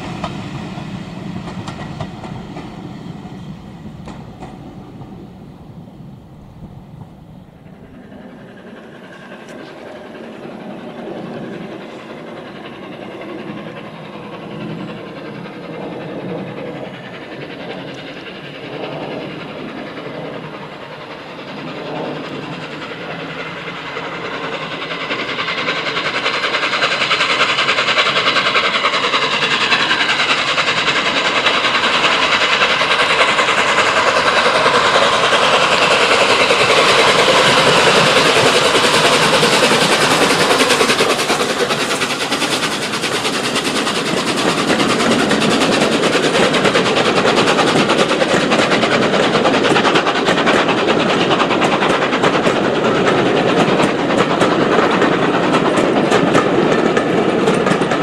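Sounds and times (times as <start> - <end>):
steam locomotive approaching: 0.0 - 58.0.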